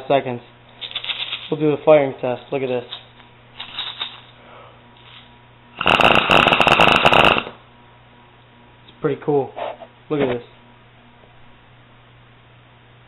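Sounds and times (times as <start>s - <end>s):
airsoft machine gun burst: 5.8s - 7.5s.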